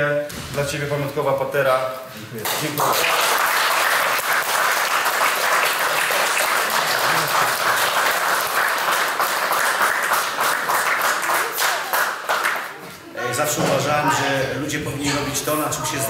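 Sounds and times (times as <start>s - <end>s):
audience applauding: 2.4s - 13.0s.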